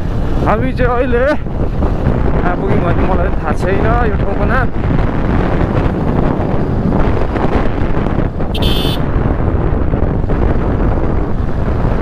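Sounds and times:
wind buffeting microphone: 0.0 - 12.0
motorcycle engine running: 4.7 - 11.9.

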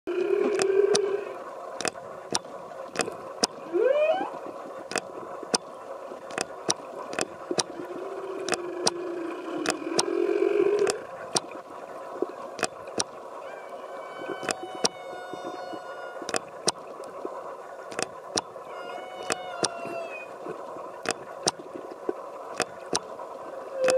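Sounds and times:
whale calling underwater: 0.1 - 1.9, 2.9 - 4.7, 7.1 - 11.4, 12.6 - 21.3, 22.9 - 23.9
sharp clicks ticking: 1.8 - 3.6, 4.9 - 5.7, 6.3 - 7.7, 8.4 - 9.0, 9.6 - 10.1, 10.8 - 11.6, 12.6 - 13.2, 17.9 - 18.6, 22.5 - 23.1.

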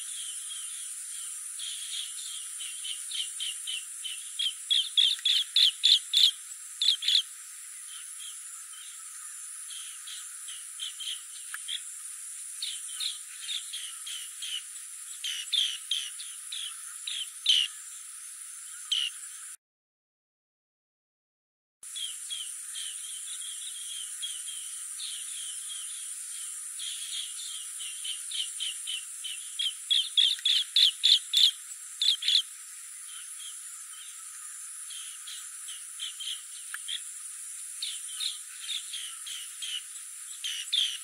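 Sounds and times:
birds chirping: 0.0 - 11.9, 21.9 - 37.2, 37.8 - 41.0
high insect buzz: 0.0 - 19.6, 21.8 - 41.0.

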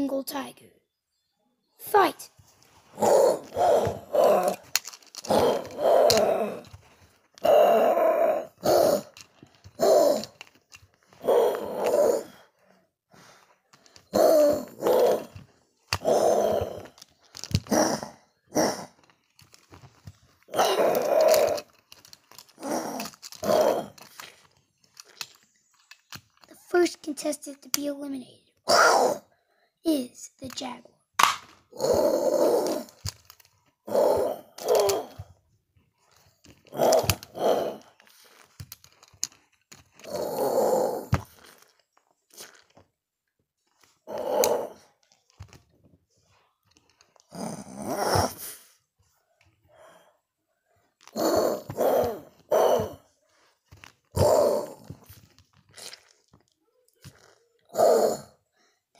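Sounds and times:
person growling and roaring: 2.9 - 12.6, 14.0 - 19.1, 20.5 - 24.4, 28.7 - 29.3, 31.7 - 33.2, 33.8 - 35.4, 36.6 - 38.5, 40.0 - 41.7, 44.0 - 45.0, 47.2 - 48.7, 51.0 - 53.2, 54.1 - 56.1, 56.9 - 58.4
plastic figurines clicking together: 3.0 - 12.8, 13.4 - 29.2, 29.9 - 43.0, 43.6 - 48.6, 50.8 - 57.8.

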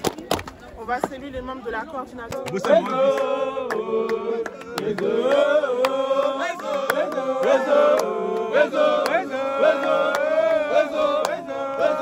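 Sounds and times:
hand claps: 2.3 - 10.5, 11.1 - 11.9
men singing a chant in harmony: 2.3 - 12.0.

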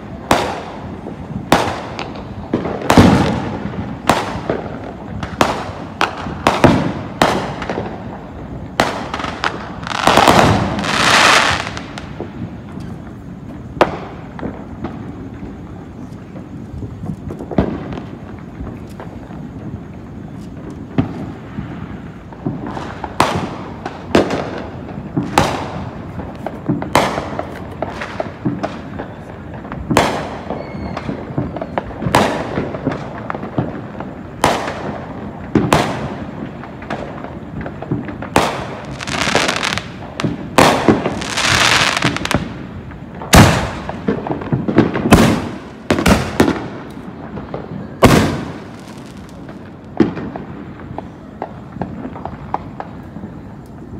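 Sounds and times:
firework bangs: 0.0 - 53.9
firework hissing: 0.0 - 53.9.

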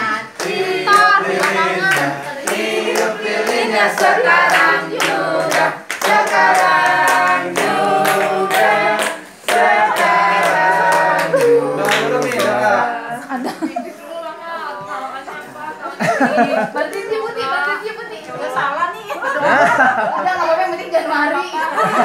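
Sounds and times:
group singing: 0.0 - 16.4
people clapping in time: 0.3 - 12.6.

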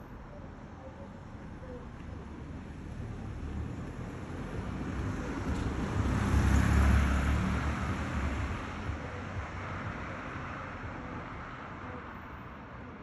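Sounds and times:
car driving past: 5.0 - 9.0.

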